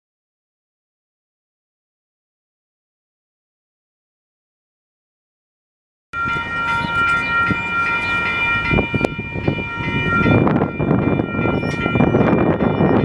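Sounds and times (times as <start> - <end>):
electronic crossing bell ringing: 6.2 - 13.0.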